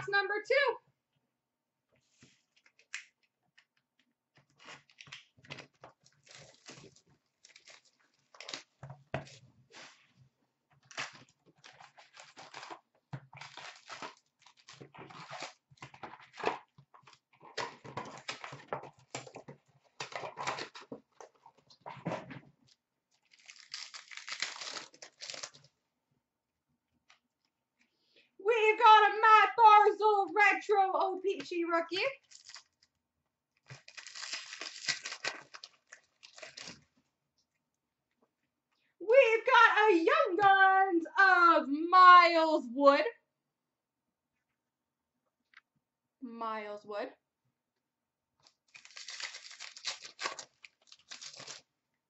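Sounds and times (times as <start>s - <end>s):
foil packs rustling: 4.7s - 8.8s, 10.9s - 16.6s, 23.3s - 25.7s, 32.2s - 32.8s, 33.7s - 36.9s, 48.7s - 51.7s
foil pack tearing: 6.1s - 8.7s, 13.4s - 15.6s, 23.3s - 25.7s, 32.2s - 32.8s, 33.7s - 36.8s, 48.7s - 51.7s.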